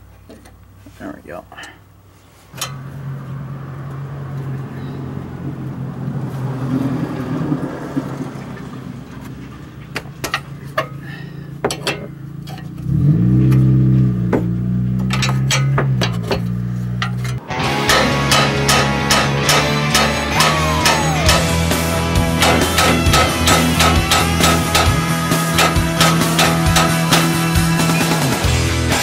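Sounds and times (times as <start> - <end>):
low motor hum: 2.0 - 28.6
wrench clinking on metal nut: 11.6 - 12.8, 15.0 - 21.5.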